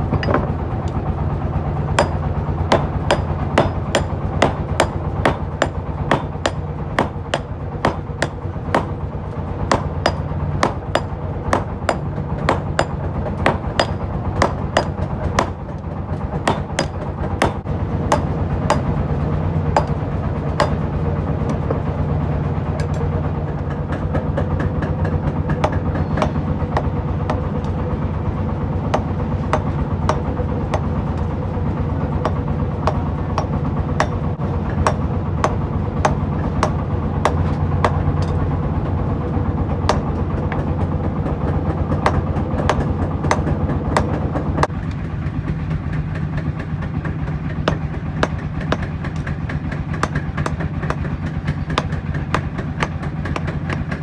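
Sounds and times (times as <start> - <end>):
steady low hum: 0.0 - 54.0
hammer ringing on anvil: 2.0 - 8.9, 9.7 - 15.5.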